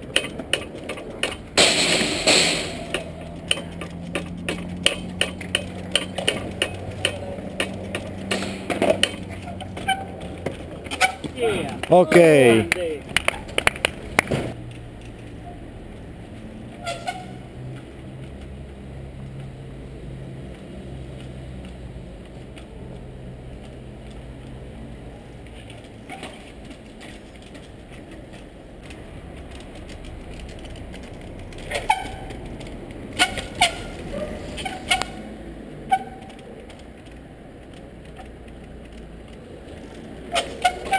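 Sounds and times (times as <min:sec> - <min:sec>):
low traffic hum: 0:00.0 - 0:40.9
tyre squeak: 0:08.4 - 0:11.4, 0:16.8 - 0:17.4, 0:26.0 - 0:27.2, 0:31.6 - 0:32.5, 0:33.1 - 0:35.2, 0:40.3 - 0:40.9.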